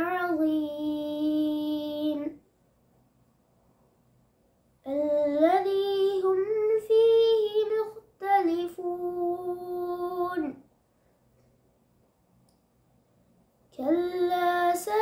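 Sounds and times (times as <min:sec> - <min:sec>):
boy chanting melodically: 0:00.0 - 0:02.4, 0:04.8 - 0:10.6, 0:13.7 - 0:15.0.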